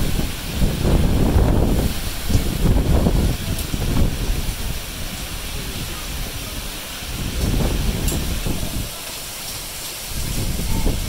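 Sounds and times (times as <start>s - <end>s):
low gusty rumble: 0.0s - 9.0s, 10.0s - 11.0s
torrential rain and hail: 0.0s - 11.0s.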